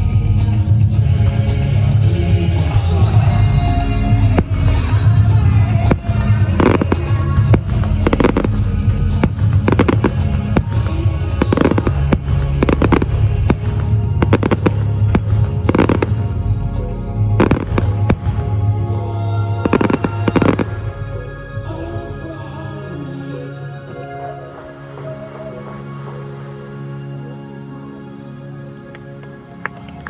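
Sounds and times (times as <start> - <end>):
loud music: 0.0 - 29.5
fireworks crackling bursts: 0.5 - 21.7
fireworks bangs: 4.2 - 21.2.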